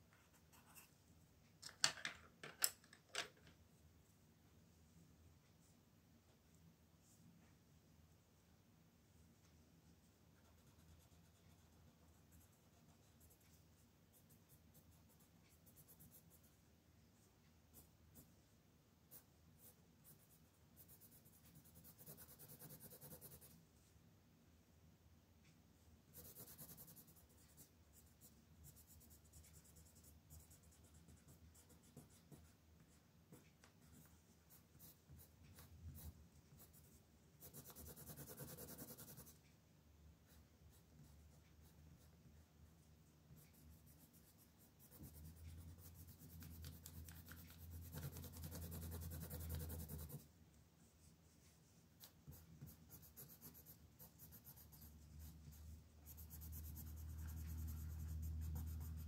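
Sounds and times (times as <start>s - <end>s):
pencil scratching on paper: 10.4s - 16.5s, 19.1s - 23.6s, 26.1s - 39.4s, 43.3s - 50.2s, 52.0s - 59.0s.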